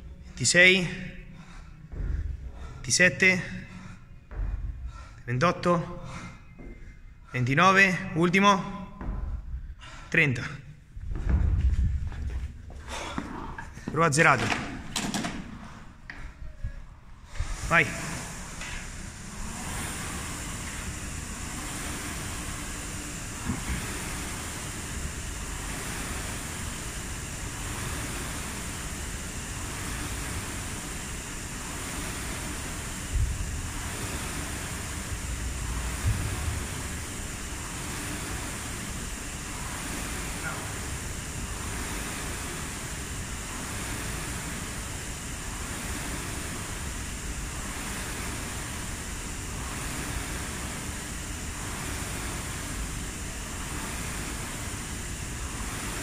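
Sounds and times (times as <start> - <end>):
rowing machine fan whooshing: 0.0 - 56.0
short low thumps: 1.4 - 7.3, 8.7 - 10.1, 10.8 - 13.0.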